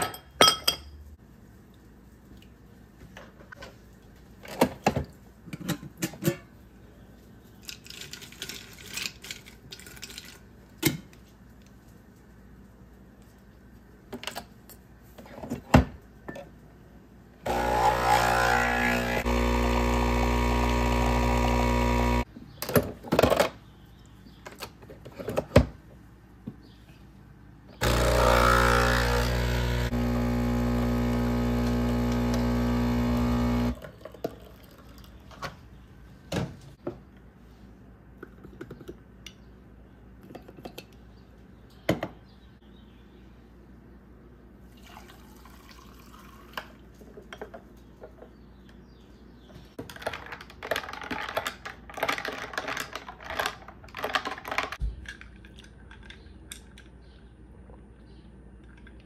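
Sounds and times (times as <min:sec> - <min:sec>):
coffee machine pump humming: 0:17.4 - 0:22.3, 0:27.8 - 0:33.8.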